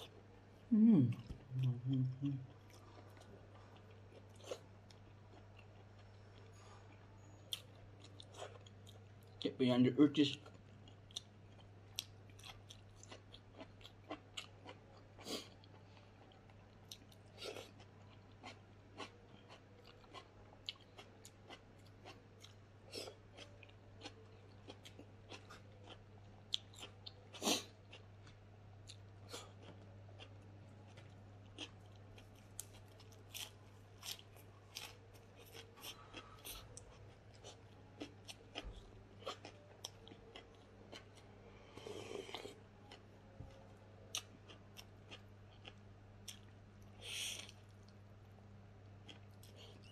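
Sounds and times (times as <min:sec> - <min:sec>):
person chewing and crunching food: 0:01.1 - 0:09.4, 0:10.2 - 0:48.0, 0:48.9 - 0:49.9.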